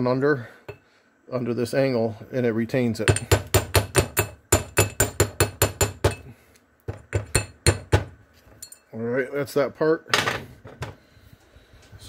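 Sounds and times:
hammer tapping on metal: 0:03.1 - 0:06.3, 0:06.9 - 0:08.8.

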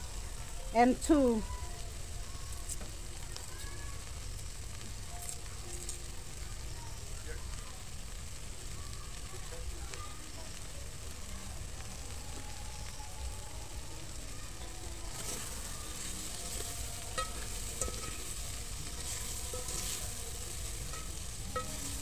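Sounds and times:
fish sizzling in a pot: 0:00.0 - 0:22.0.

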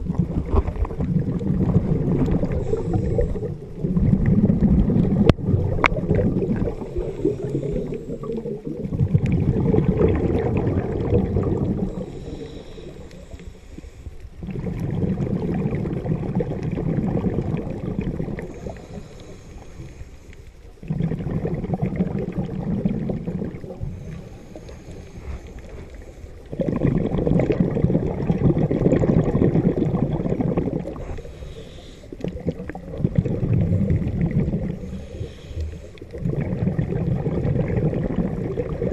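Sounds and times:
exhaled bubbles: 0:00.0 - 0:38.9
diver breathing through regulator: 0:02.3 - 0:03.7, 0:06.6 - 0:08.4, 0:11.6 - 0:14.2, 0:18.4 - 0:20.6, 0:23.7 - 0:26.8, 0:30.8 - 0:32.4, 0:34.4 - 0:36.4.

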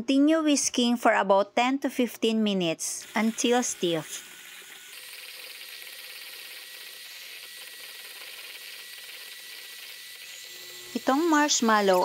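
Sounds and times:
electric hand mixer whirring: 0:03.0 - 0:12.0.

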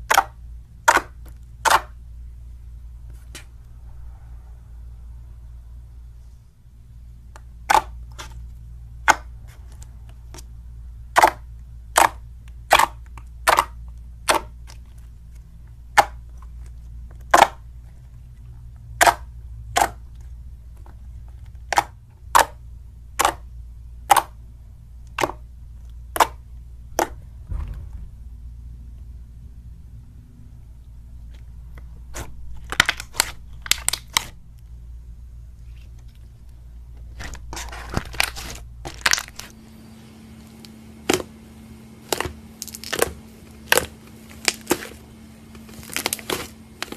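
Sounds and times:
slime squelch: 0:00.0 - 0:02.0, 0:07.2 - 0:24.4, 0:25.0 - 0:27.4, 0:31.1 - 0:34.8, 0:40.4 - 0:46.9.

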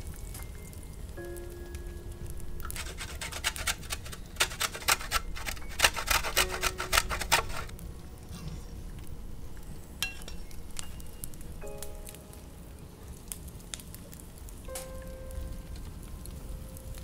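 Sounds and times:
root grated by hand: 0:02.6 - 0:07.7.

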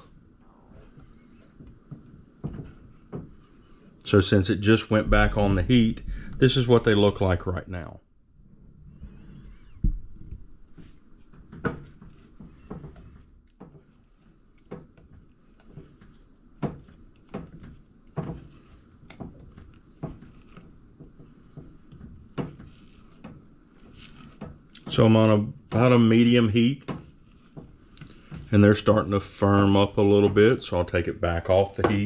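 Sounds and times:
spatula knocking and scraping pan: 0:14.6 - 0:25.1.

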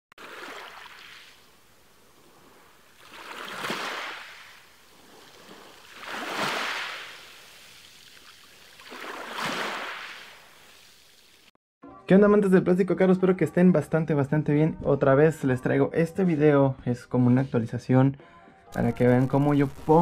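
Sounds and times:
ocean waves washing in: 0:00.2 - 0:08.0.

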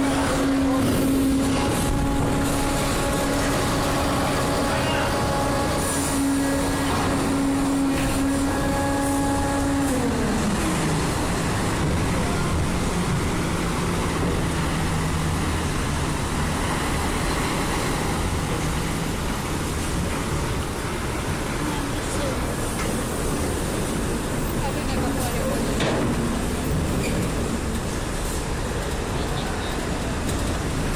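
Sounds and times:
constant machinery hum: 0:00.0 - 0:30.9
ship engine tone: 0:00.0 - 0:30.9.

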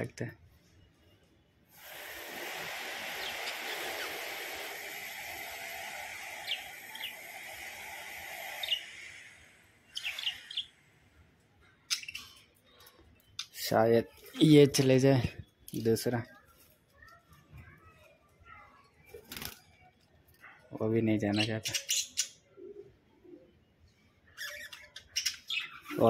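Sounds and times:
sharp bird chirps: 0:06.2 - 0:10.9
budgerigars chattering: 0:10.0 - 0:10.7.

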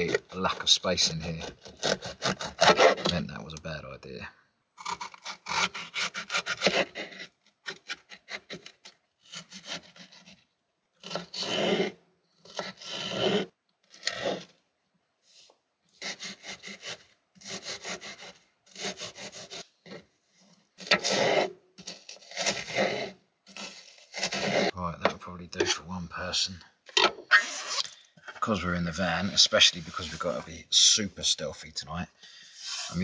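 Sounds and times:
knife cutting vegetables on board: 0:20.8 - 0:25.8.

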